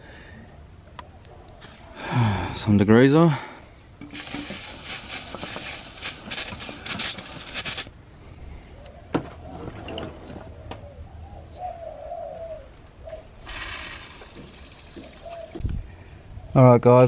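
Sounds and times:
aerosol spray hissing: 0:04.1 - 0:07.9
dove cooing: 0:08.8 - 0:13.4, 0:14.9 - 0:15.8.

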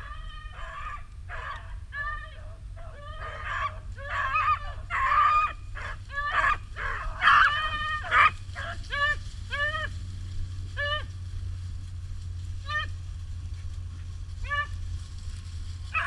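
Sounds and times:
dog barks: 0:00.0 - 0:09.9
hunting dogs baying: 0:00.0 - 0:16.0.

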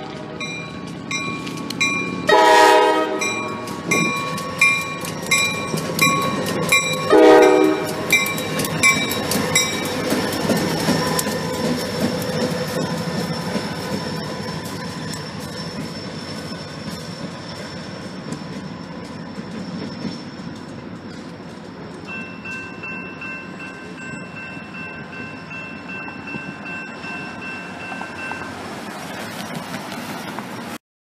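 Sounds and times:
diesel locomotive rumbling: 0:00.0 - 0:30.8.

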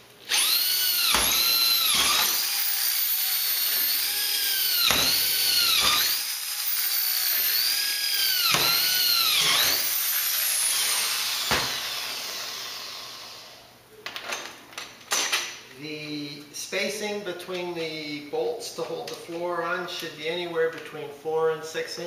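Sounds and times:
power drill whining: 0:00.2 - 0:13.6.

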